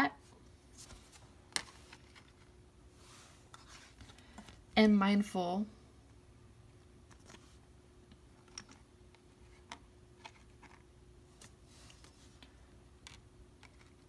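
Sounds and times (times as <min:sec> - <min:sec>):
soft brushing: 0:00.2 - 0:04.5, 0:11.3 - 0:12.5.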